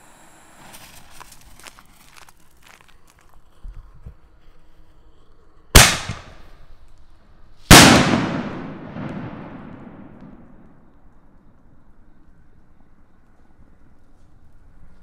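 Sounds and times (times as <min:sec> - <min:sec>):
firework shell bursting overhead: 0:05.8 - 0:06.7, 0:07.6 - 0:10.9.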